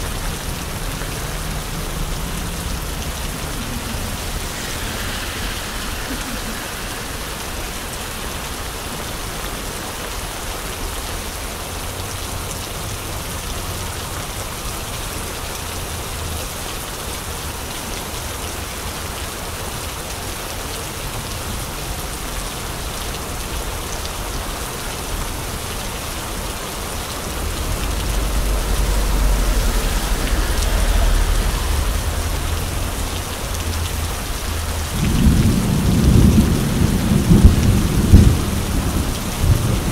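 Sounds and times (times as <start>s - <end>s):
wind buffeting microphone: 0.2s - 10.3s
rain pattering on umbrella: 15.2s - 39.9s.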